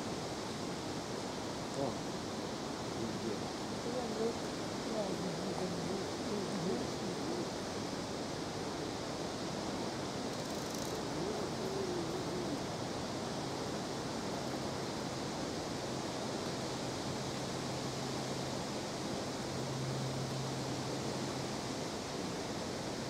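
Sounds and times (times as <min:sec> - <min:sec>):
outdoor background hiss: 0:00.0 - 0:23.0
faint voice: 0:03.0 - 0:07.6, 0:11.0 - 0:12.8.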